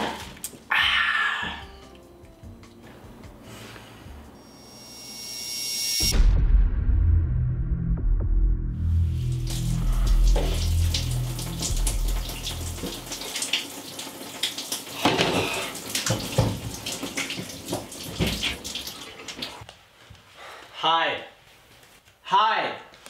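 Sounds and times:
low music: 0:00.0 - 0:04.4, 0:06.1 - 0:13.5
shower water spraying: 0:09.0 - 0:19.6.

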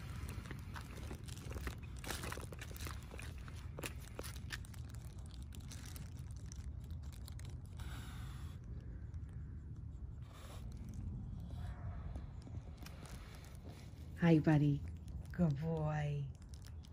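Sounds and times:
hedge leaves crackling and rustling: 0:00.0 - 0:07.8, 0:12.8 - 0:16.9
steady low rumble: 0:00.0 - 0:16.9.

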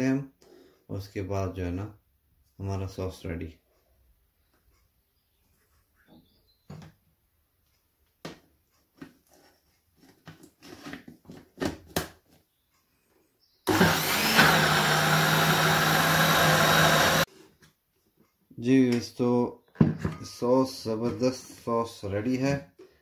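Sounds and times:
electric blender running: 0:13.7 - 0:17.3.

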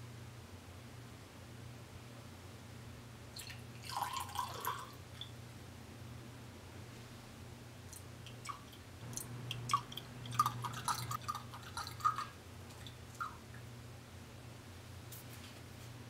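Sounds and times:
liquid pouring into glass: 0:03.4 - 0:05.3, 0:08.3 - 0:13.4.

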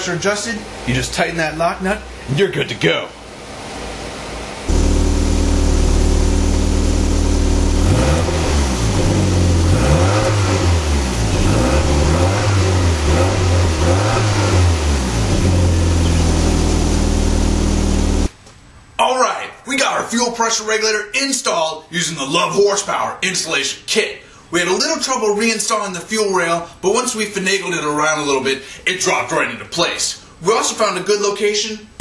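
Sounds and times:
car engine revving: 0:03.4 - 0:18.3.

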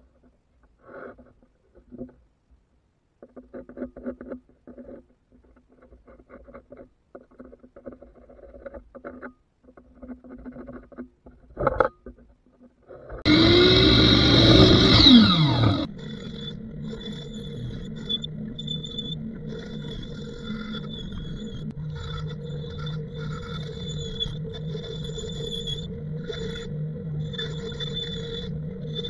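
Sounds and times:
miter saw cutting wood: 0:13.3 - 0:29.0.

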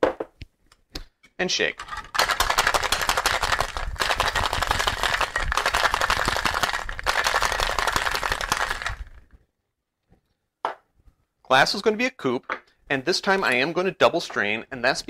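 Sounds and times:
ice rattling in cocktail shaker: 0:01.8 - 0:09.3.

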